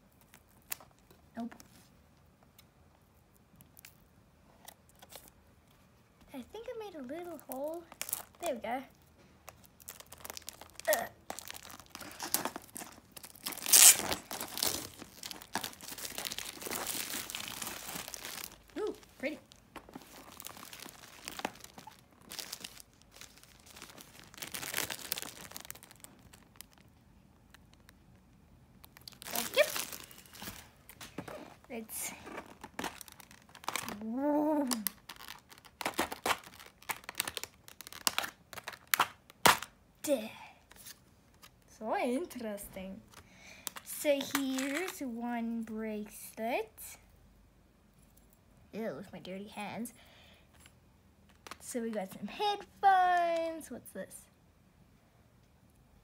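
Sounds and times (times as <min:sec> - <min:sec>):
plastic film crinkling and tearing: 0:00.0 - 0:01.0, 0:07.2 - 0:08.6, 0:09.4 - 0:28.0, 0:28.7 - 0:39.7, 0:43.6 - 0:45.0.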